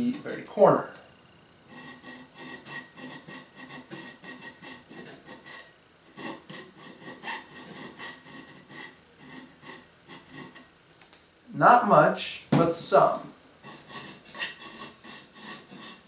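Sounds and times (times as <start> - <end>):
hand file scraping metal: 1.7 - 10.7, 13.6 - 16.0.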